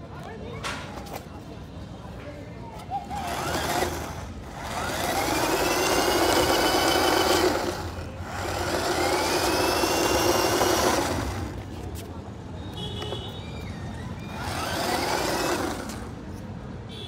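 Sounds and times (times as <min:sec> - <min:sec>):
small electric motors whirring: 0:03.0 - 0:12.0, 0:13.6 - 0:16.4.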